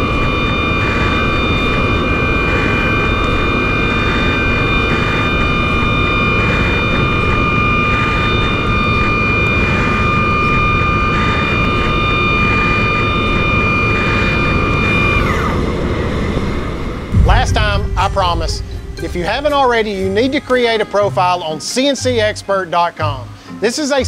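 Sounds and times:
machine spindle whine: 0:00.0 - 0:22.0
reamer cutting pulse: 0:12.6 - 0:21.3.

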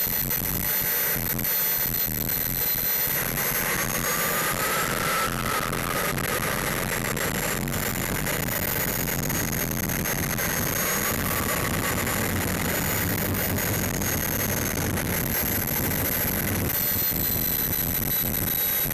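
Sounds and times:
turbine engine high whine: 0:00.0 - 0:18.9
low rumble: 0:09.2 - 0:16.8.

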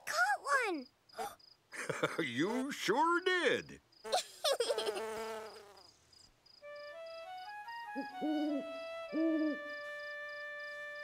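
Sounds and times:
crickets chirping: 0:00.6 - 0:11.0
owl hooting: 0:08.0 - 0:09.7.

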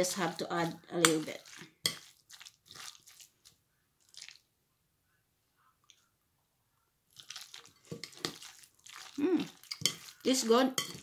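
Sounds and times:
fork squishing food in bowl: 0:00.4 - 0:04.4, 0:07.1 - 0:11.0.

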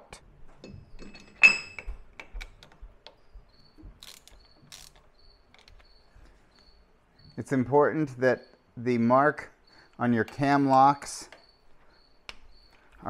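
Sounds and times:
hand ratchet clicking: 0:04.0 - 0:05.9.

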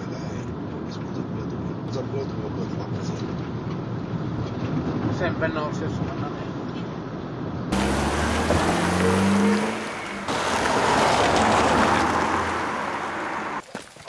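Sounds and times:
road noise: 0:00.0 - 0:14.0
car engine accelerating: 0:07.7 - 0:13.6.

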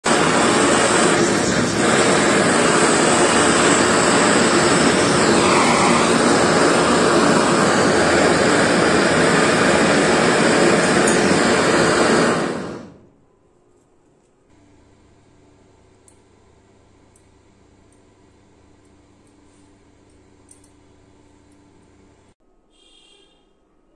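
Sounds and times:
blowtorch flame hissing: 0:00.0 - 0:13.1.

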